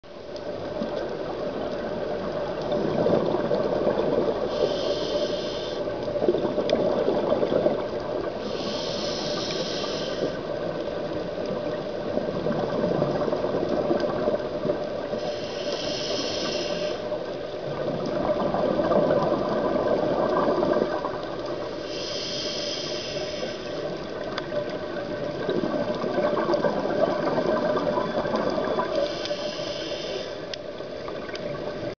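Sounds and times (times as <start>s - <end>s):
regulator hiss on inhale: 4.4s - 6.1s, 8.4s - 10.6s, 15.1s - 17.3s, 21.5s - 24.2s, 28.9s - 30.6s
exhaled bubbles rushing: 17.7s - 21.4s, 24.6s - 28.9s.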